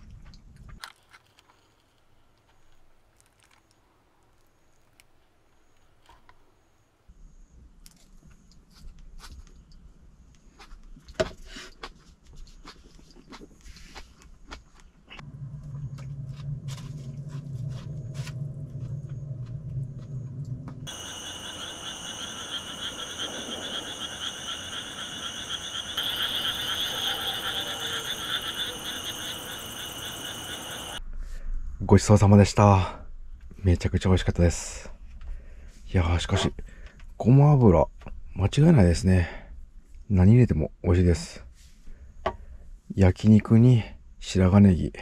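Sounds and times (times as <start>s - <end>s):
low steady hum: 14.8s - 23.6s
night animals trilling: 20.9s - 31.0s.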